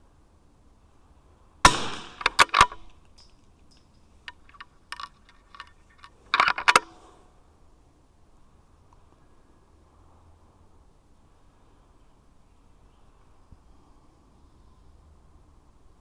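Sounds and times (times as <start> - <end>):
rifle shot: 1.6 - 3.0
rifle bolt clicking: 1.9 - 3.4, 4.3 - 6.9.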